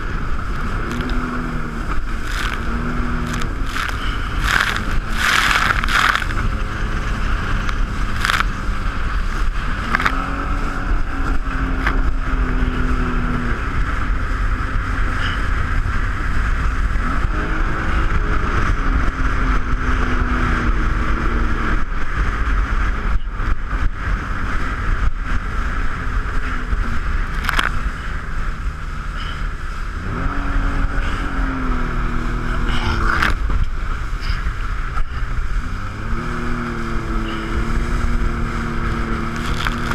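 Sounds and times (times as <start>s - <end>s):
loud rush of noise: 0.0s - 15.4s, 31.9s - 39.9s
jet ski engine revving: 0.0s - 21.6s, 25.6s - 39.9s.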